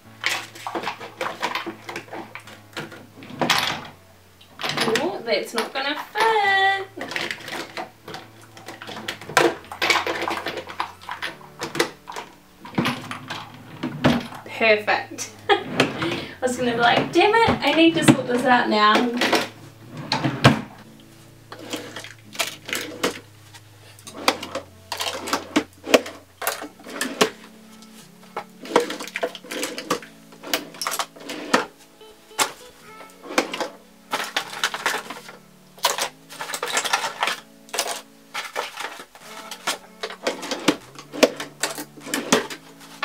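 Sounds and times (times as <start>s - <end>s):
background music with low notes: 0.0s - 43.0s
makeup items clattering: 0.0s - 43.0s.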